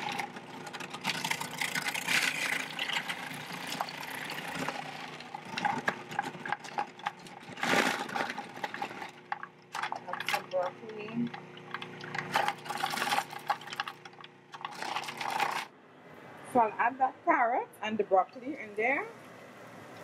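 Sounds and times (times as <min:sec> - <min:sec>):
carrots grating and clattering: 0:00.0 - 0:15.7
food processor motor hum: 0:00.0 - 0:15.7.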